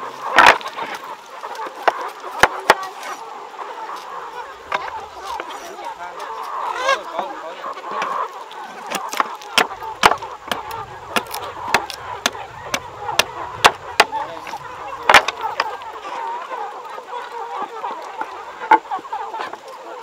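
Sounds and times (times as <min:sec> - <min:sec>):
chickens clucking: 0:00.0 - 0:20.0
wood being struck: 0:08.9 - 0:15.8.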